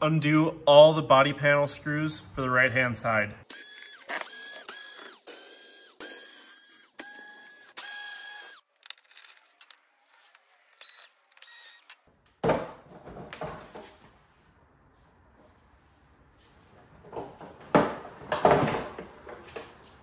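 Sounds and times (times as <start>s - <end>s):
electric screwdriver whirring: 3.5s - 8.7s, 9.4s - 12.0s.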